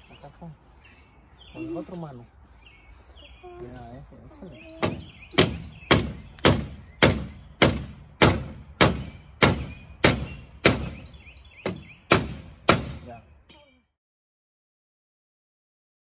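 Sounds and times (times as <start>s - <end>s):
hammer striking wood: 4.8s - 13.1s.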